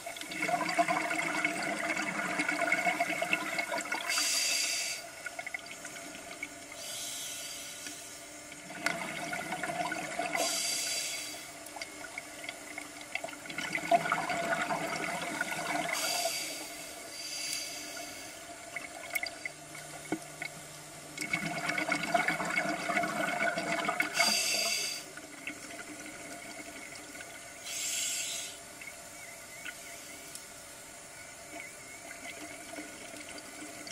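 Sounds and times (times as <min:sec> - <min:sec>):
exhaled bubbles gurgling underwater: 0:00.0 - 0:04.5, 0:08.4 - 0:10.7, 0:11.6 - 0:16.7, 0:18.6 - 0:27.6
regulator inhalation hiss: 0:04.0 - 0:05.2, 0:06.7 - 0:08.4, 0:10.4 - 0:11.6, 0:15.9 - 0:18.6, 0:24.1 - 0:25.2, 0:27.6 - 0:28.7.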